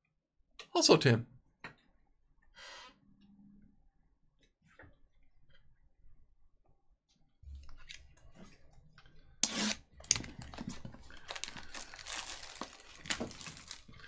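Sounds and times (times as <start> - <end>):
plastic wrap tearing and crinkling: 9.6 - 14.0.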